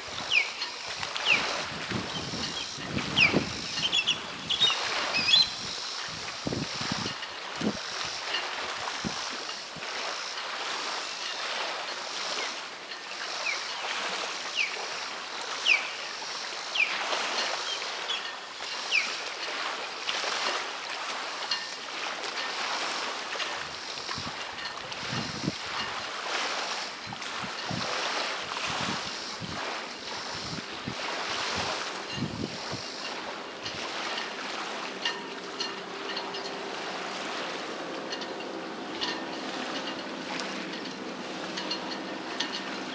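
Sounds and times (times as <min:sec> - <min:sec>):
small waves lapping: 0:00.0 - 0:42.9
steady wind: 0:00.0 - 0:42.9
bird chirps: 0:02.5 - 0:05.9.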